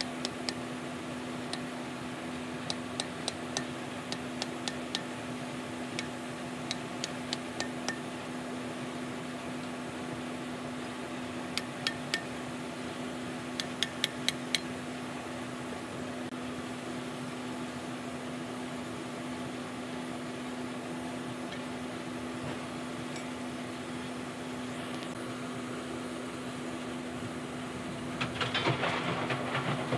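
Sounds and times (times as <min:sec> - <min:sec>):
hammer tapping metal punch: 0:00.0 - 0:00.6, 0:02.6 - 0:05.1, 0:06.0 - 0:08.1, 0:11.5 - 0:12.4, 0:13.6 - 0:14.7
steady low hum: 0:00.0 - 0:29.8.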